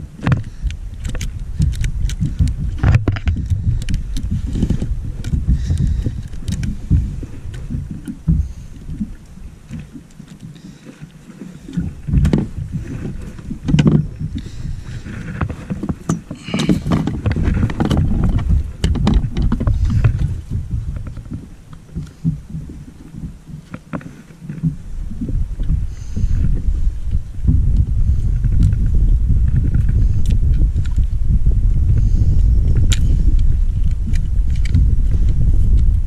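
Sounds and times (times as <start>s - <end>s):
wind and water rumble: 0.0s - 36.0s
gear knocking and scraping: 0.2s - 8.6s, 11.8s - 22.4s.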